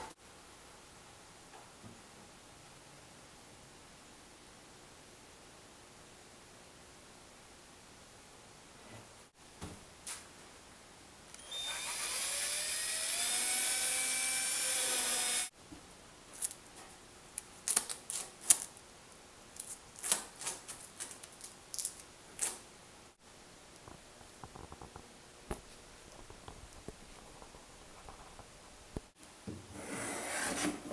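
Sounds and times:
cordless drill motor whine: 11.4s - 15.5s.

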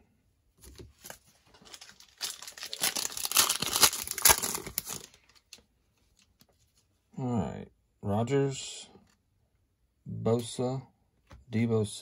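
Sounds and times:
plastic wrapper crinkling and tearing: 1.0s - 6.3s.

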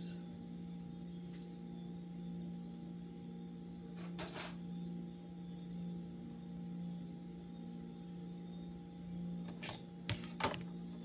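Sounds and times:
low hum: 0.0s - 11.0s.

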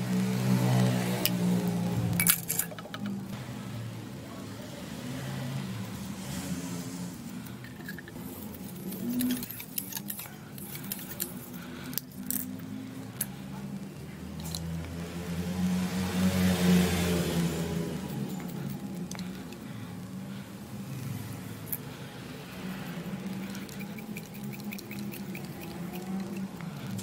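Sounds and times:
pipe fittings clicking and rattling: 2.1s - 3.3s, 7.6s - 13.3s.

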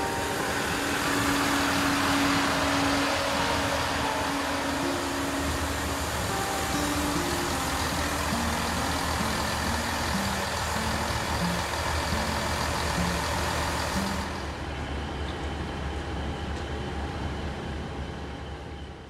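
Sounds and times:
hiss: 0.0s - 14.4s
diesel train engine humming: 0.0s - 19.0s.

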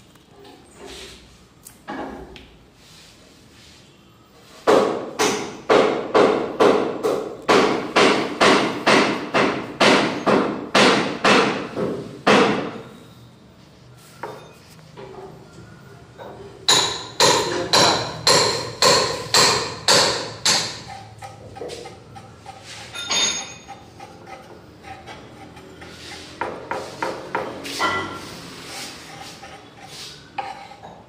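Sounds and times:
rhythmic hammer knocking: 4.7s - 12.7s, 16.7s - 28.1s.

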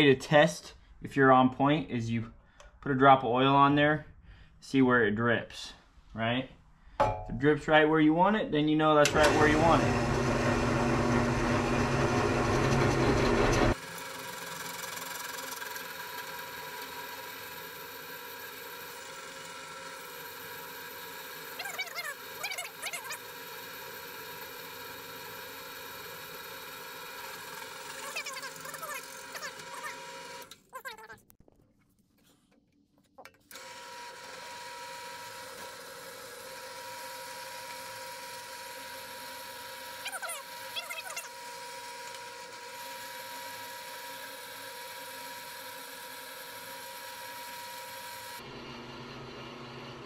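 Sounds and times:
drill press motor running: 9.0s - 30.6s, 33.5s - 50.0s.

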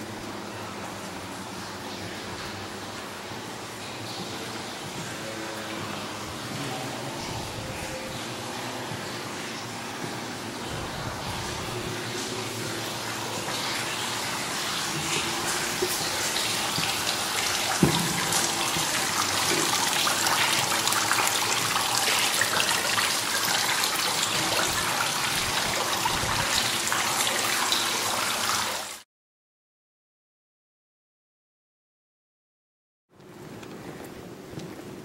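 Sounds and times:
fountain water splashing into basin: 10.7s - 29.0s.

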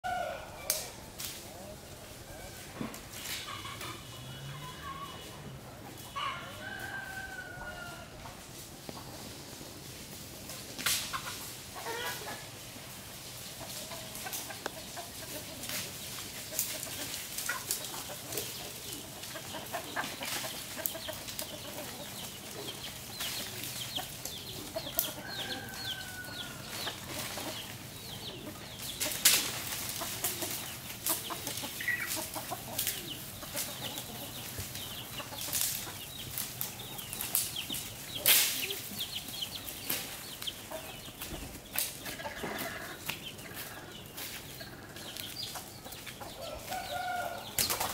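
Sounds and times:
chickens clucking: 0.0s - 47.9s.

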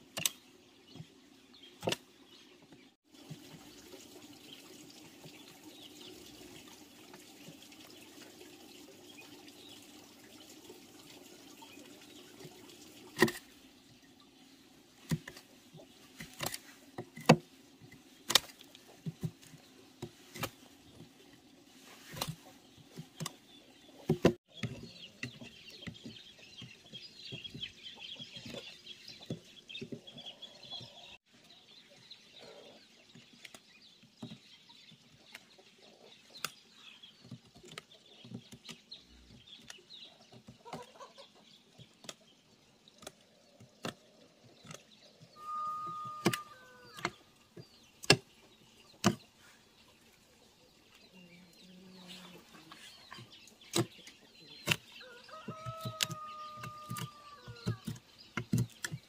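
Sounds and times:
hen clucking: 40.6s - 41.4s.

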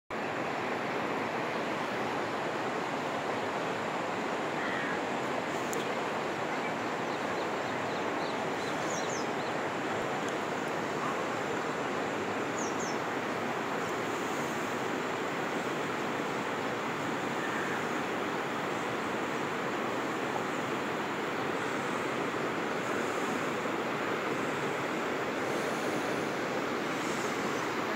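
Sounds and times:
floodwater rushing: 9.5s - 27.9s.

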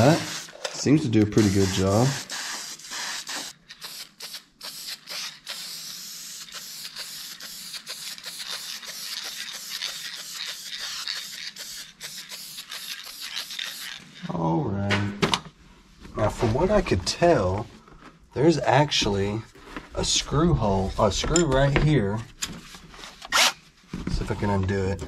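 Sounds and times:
aerosol can spraying hiss: 0.0s - 0.5s, 1.3s - 14.0s.

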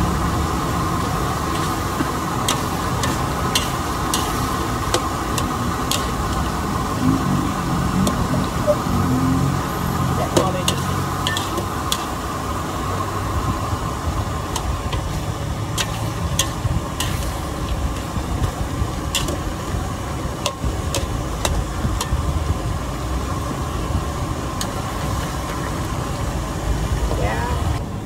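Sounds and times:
low rumble: 0.0s - 28.0s.

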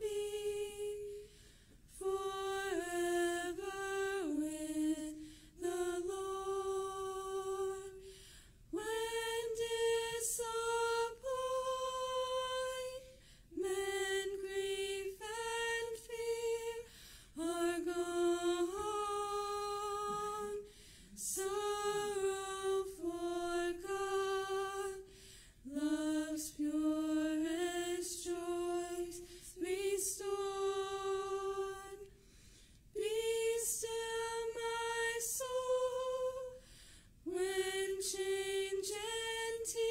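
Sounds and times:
women singing a cappella: 0.0s - 39.9s
singers breathing: 1.2s - 1.9s, 5.1s - 5.6s, 8.0s - 8.7s, 13.1s - 13.5s, 16.8s - 17.4s, 20.6s - 21.2s, 25.0s - 25.7s, 29.2s - 29.6s, 32.1s - 32.9s, 36.6s - 37.2s.

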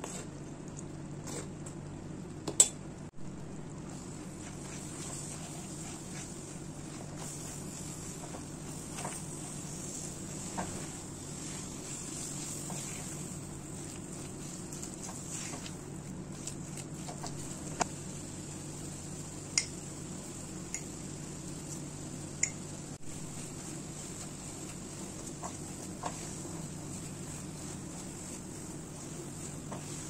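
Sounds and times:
steady low hum: 0.0s - 30.0s
spatula scraping a pan: 23.3s - 30.0s.

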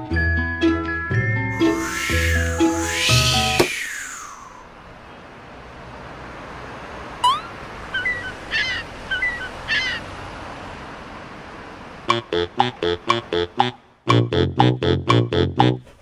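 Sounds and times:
steady outdoor hiss: 1.6s - 14.1s
seagull calls: 7.2s - 10.1s.

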